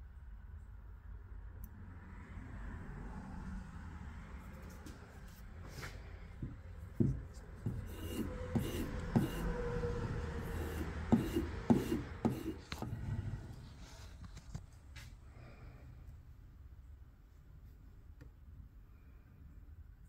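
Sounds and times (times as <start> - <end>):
hand hone scraping axe edge: 7.1 - 9.6.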